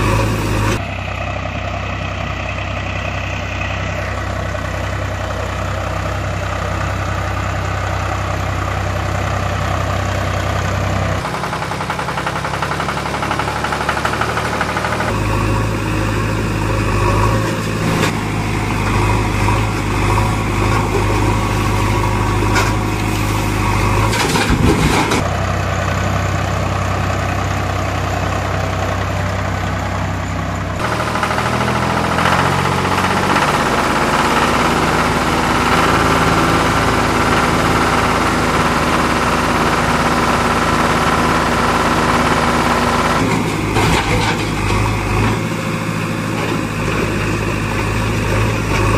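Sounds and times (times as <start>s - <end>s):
vehicle engine running: 0.0s - 48.9s
clunks: 23.9s - 25.3s, 43.2s - 45.5s.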